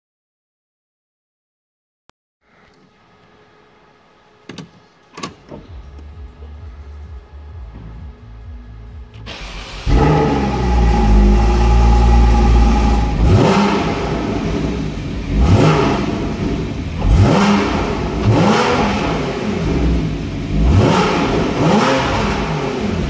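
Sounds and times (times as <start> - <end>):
car engine idling and revving: 5.2 - 23.0.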